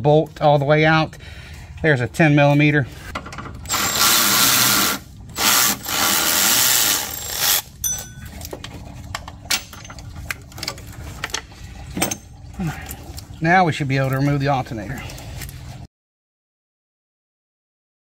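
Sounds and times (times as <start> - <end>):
cordless ratchet spinning: 3.6 - 7.7.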